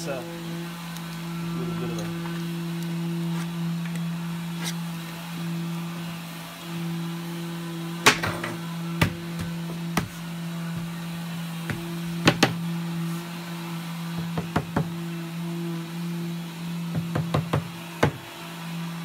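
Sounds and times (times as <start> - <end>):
steady low hum: 0.0 - 19.0
sharp knocks on plywood cabinet: 11.7 - 12.6, 16.9 - 18.2.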